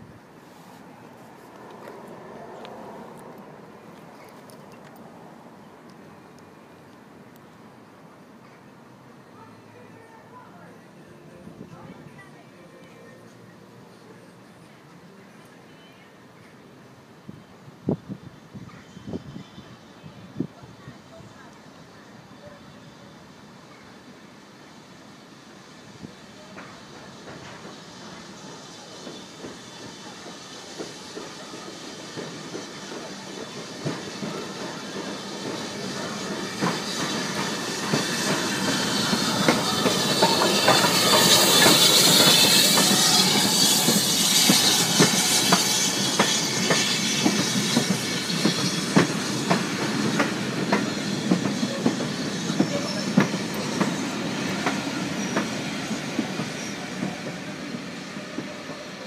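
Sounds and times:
steam locomotive passing: 0:00.0 - 0:59.0
steam hiss: 0:17.3 - 0:59.0.

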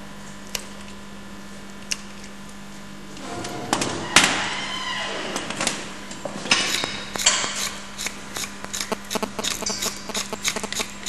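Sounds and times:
faint steady hum: 0:00.0 - 0:11.0
hoof trimming tools scraping: 0:06.2 - 0:11.0.

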